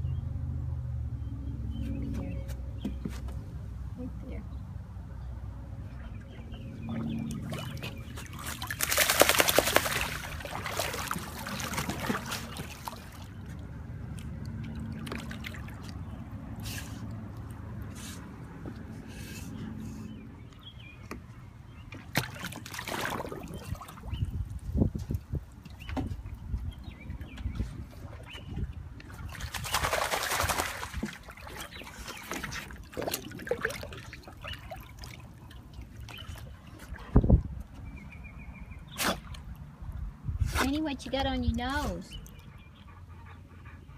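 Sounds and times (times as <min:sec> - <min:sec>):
water sloshing: 0:05.8 - 0:19.0, 0:21.0 - 0:37.9
dog splashing in water: 0:06.9 - 0:13.5, 0:14.1 - 0:16.4, 0:22.0 - 0:24.2, 0:27.5 - 0:36.9.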